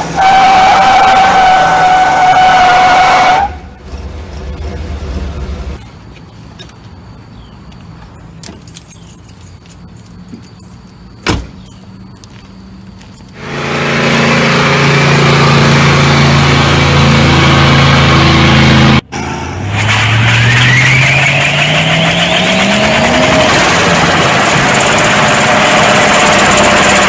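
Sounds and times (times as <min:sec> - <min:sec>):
tyres squealing: 0:00.1 - 0:03.8
engine rumble: 0:01.4 - 0:27.0
engine running at high revs: 0:13.4 - 0:27.0.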